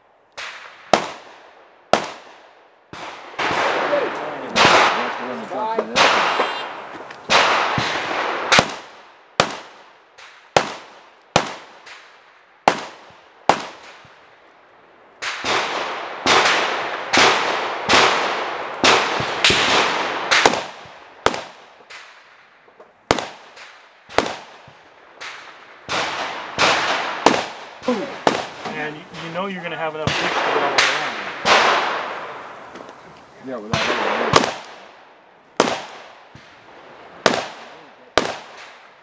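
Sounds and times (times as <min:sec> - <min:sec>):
pistol shots with echo: 0:00.4 - 0:14.2, 0:15.2 - 0:22.3, 0:23.1 - 0:32.6, 0:33.6 - 0:39.0.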